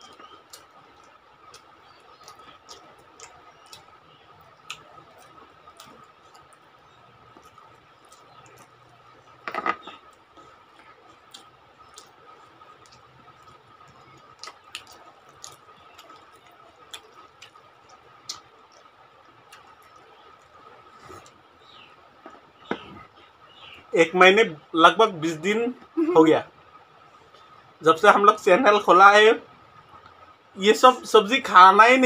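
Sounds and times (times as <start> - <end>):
chewing and lip smacks: 0.0 - 23.8.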